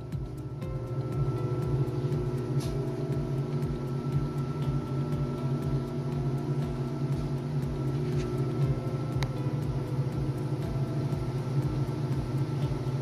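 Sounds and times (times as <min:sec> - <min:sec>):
washing machine motor humming: 0:00.0 - 0:13.0.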